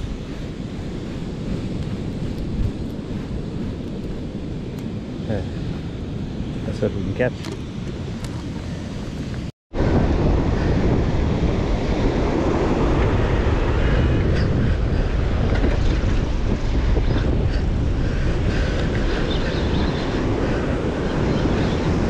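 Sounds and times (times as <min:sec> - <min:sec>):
wind buffeting microphone: 0:00.0 - 0:22.0
surf rushing: 0:09.8 - 0:22.0.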